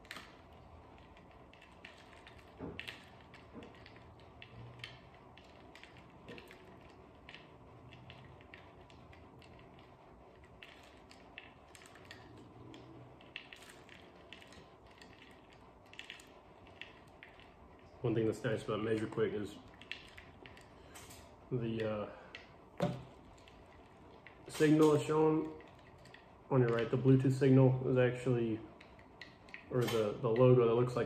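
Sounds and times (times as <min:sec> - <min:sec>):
crushed ice clicking in water: 0:00.0 - 0:27.5.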